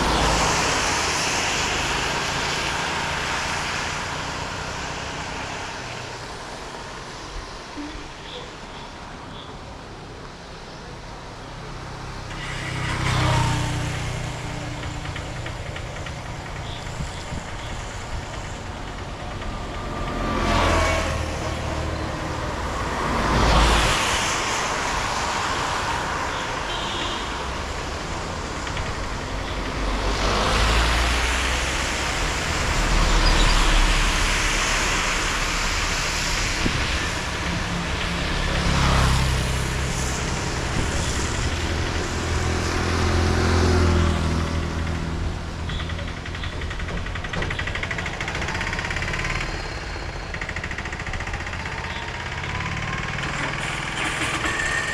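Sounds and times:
vehicles passing on wet road: 0:00.0 - 0:54.9.

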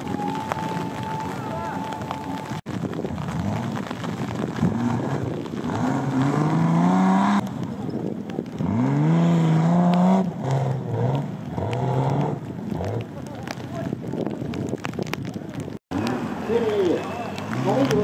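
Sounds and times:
off-road engines revving: 0:03.2 - 0:14.0, 0:15.9 - 0:18.0.

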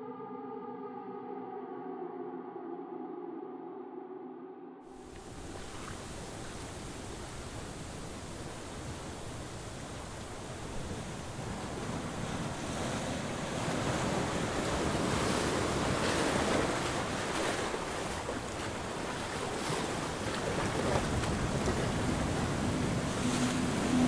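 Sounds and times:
ocean surf washing: 0:04.9 - 0:24.0.

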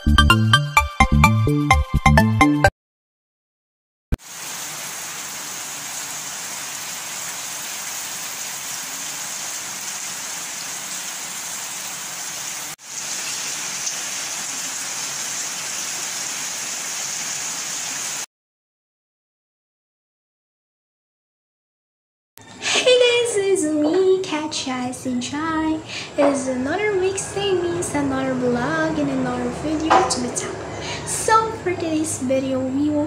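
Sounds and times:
heavy rain falling: 0:04.2 - 0:18.3.

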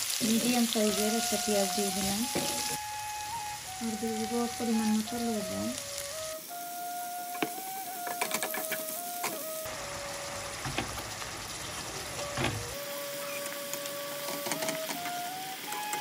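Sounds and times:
onions sizzling in oil: 0:00.0 - 0:16.0
soft background music: 0:00.2 - 0:11.0.

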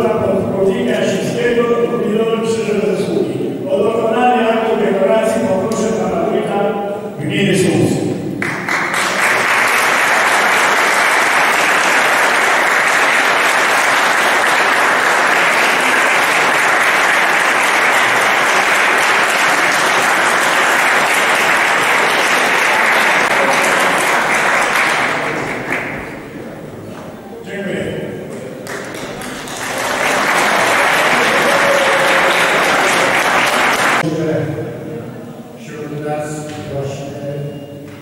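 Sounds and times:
audience applauding: 0:08.4 - 0:26.4, 0:28.6 - 0:34.1.

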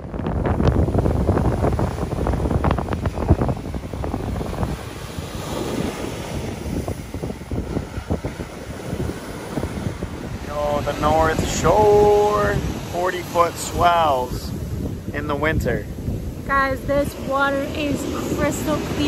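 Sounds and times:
ocean waves breaking on beach: 0:00.0 - 0:19.0
rough crackling rumble: 0:00.0 - 0:19.0
wind buffeting microphone: 0:00.0 - 0:19.0.

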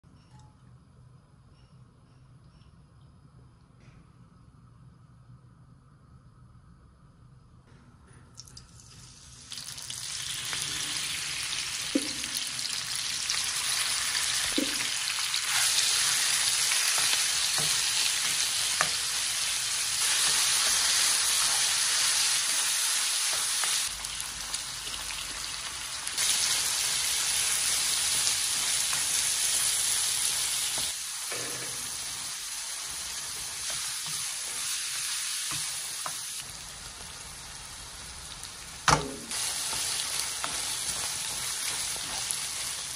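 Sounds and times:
meat sizzling in hot oil: 0:08.8 - 0:42.9.

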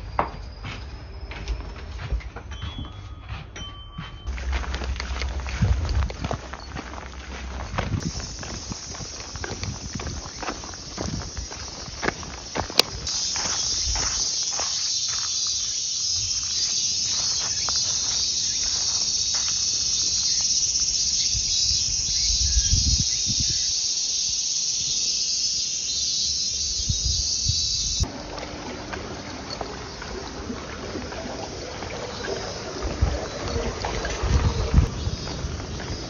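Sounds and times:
soft low thumps: 0:00.0 - 0:14.2
high-pitched insect chorus: 0:04.3 - 0:28.1, 0:29.4 - 0:36.0.

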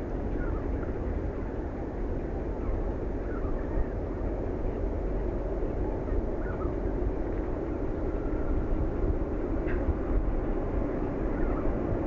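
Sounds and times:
low outdoor rumble: 0:00.0 - 0:12.0
faint bird chirps: 0:02.6 - 0:04.0, 0:11.3 - 0:11.8.

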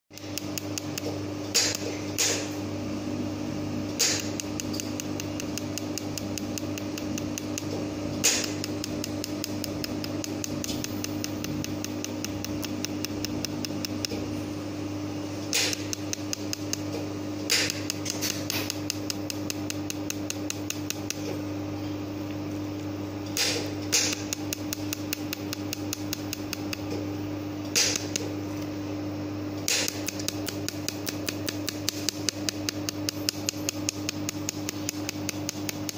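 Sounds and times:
machine steady hum: 0:00.1 - 0:35.9
laser welder sharp ticks: 0:00.2 - 0:02.6, 0:03.9 - 0:14.3, 0:15.4 - 0:21.3, 0:23.3 - 0:27.0, 0:27.6 - 0:28.4, 0:29.6 - 0:35.9
loud snap: 0:04.0 - 0:04.9, 0:08.2 - 0:08.7, 0:15.5 - 0:16.9, 0:17.5 - 0:18.8, 0:23.4 - 0:24.5, 0:27.7 - 0:28.3, 0:29.6 - 0:32.2.

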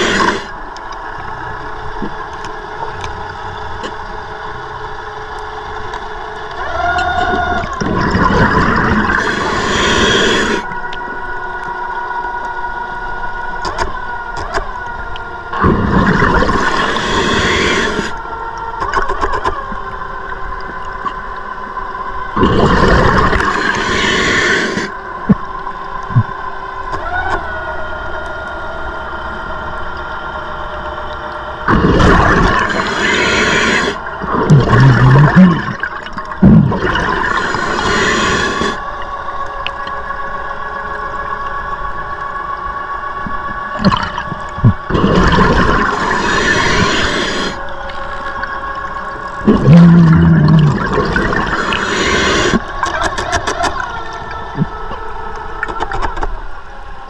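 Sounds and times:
diver breathing through regulator: 0:00.0 - 0:00.6, 0:07.5 - 0:10.8, 0:15.6 - 0:18.3, 0:22.4 - 0:25.0, 0:31.7 - 0:38.9, 0:43.8 - 0:53.8
steady hiss: 0:00.0 - 0:06.6, 0:08.5 - 0:11.6, 0:15.5 - 0:18.6, 0:20.1 - 0:26.9, 0:31.0 - 0:55.6
exhaled bubbles rushing: 0:06.6 - 0:10.1, 0:15.5 - 0:18.2, 0:22.3 - 0:24.4, 0:31.6 - 0:38.8, 0:43.4 - 0:56.0.

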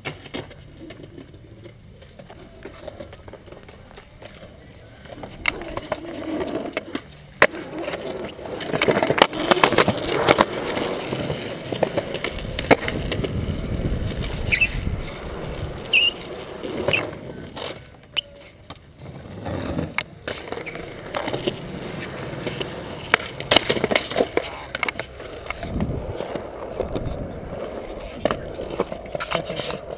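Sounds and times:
skateboard clacking on ground: 0:00.0 - 0:29.9
skateboard wheels rolling on concrete: 0:00.0 - 0:29.9.

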